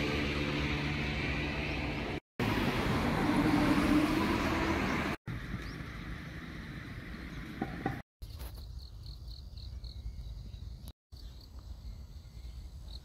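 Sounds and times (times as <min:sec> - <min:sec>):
road traffic engine hum: 0:00.0 - 0:08.0.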